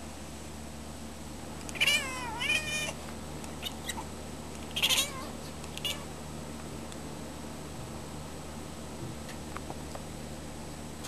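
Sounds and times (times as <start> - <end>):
cat meowing: 1.7 - 3.0, 4.8 - 6.1.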